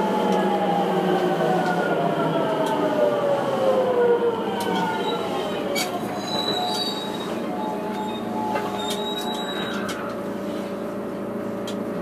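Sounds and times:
train wheel rumble: 0:00.0 - 0:12.0
faint high squeal: 0:06.1 - 0:09.9.

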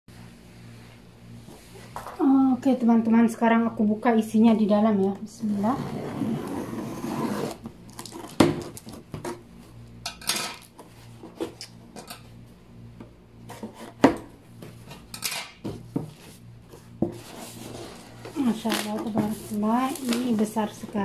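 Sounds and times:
cardboard rustling: 0:16.1 - 0:21.0
scissors cutting packing tape: 0:19.8 - 0:20.4.

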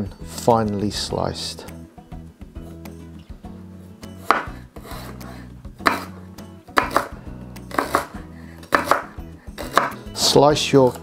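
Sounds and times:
soft background music: 0:00.0 - 0:11.0
knife chopping on wooden board: 0:04.2 - 0:10.2.

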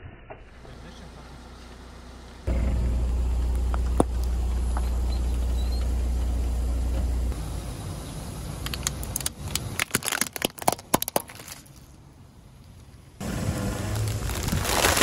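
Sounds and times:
car engine humming: 0:00.6 - 0:09.8, 0:12.0 - 0:15.0
plastic ball cracking under tyre: 0:08.6 - 0:11.9.

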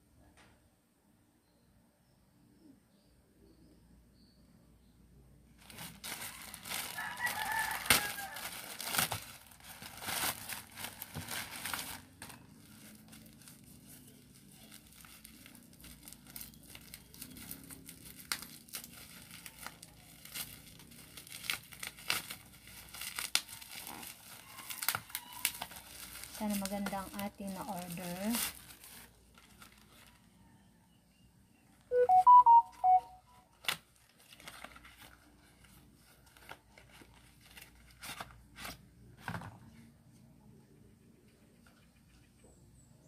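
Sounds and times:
plastic packaging crinkling and tearing: 0:05.6 - 0:30.6, 0:33.5 - 0:38.9
brief pitched call: 0:31.9 - 0:33.3.

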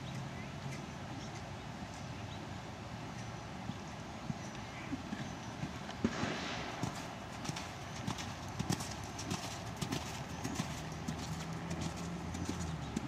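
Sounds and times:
horse hoofbeats cantering on sand: 0:03.6 - 0:13.0
horse landing on sand: 0:05.9 - 0:10.7.

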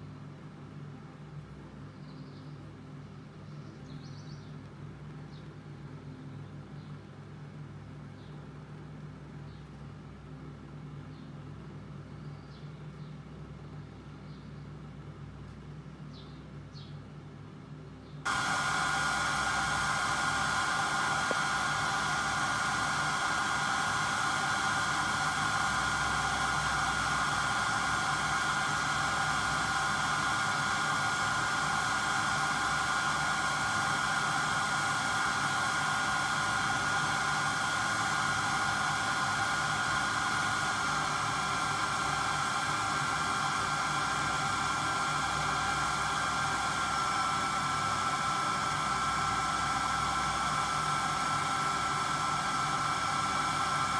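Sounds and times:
coffee roaster fan rushing: 0:18.3 - 0:53.9
high whine: 0:18.3 - 0:53.9.

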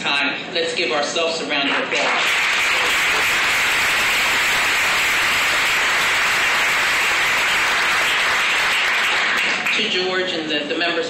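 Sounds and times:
audience applauding: 0:01.7 - 0:09.8.

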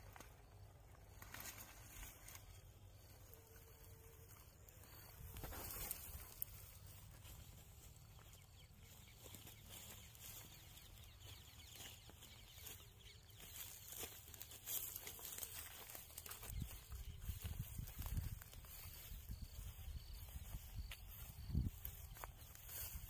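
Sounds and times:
footsteps on dry grass: 0:00.0 - 0:23.0.

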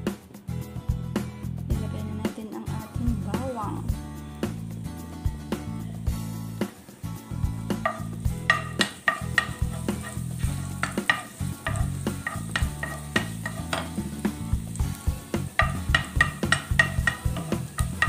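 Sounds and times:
garlic sizzling in oil: 0:03.2 - 0:18.0
spatula scraping a pan: 0:07.7 - 0:14.4, 0:15.2 - 0:18.0.

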